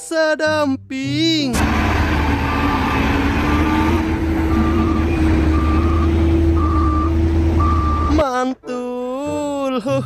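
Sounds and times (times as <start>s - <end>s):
diesel truck engine rumbling: 0.0s - 8.6s
reversing alarm beeps: 2.4s - 8.2s.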